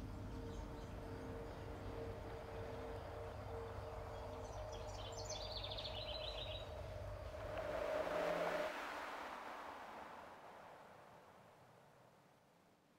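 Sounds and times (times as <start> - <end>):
low hum: 0.0 - 12.2
songbird trilling: 4.4 - 6.7.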